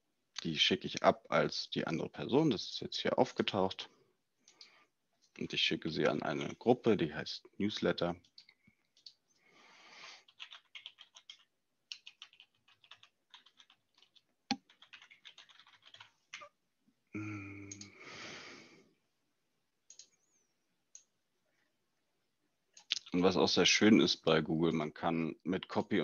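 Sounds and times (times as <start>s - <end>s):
typing on computer keyboard: 10.2s - 16.5s.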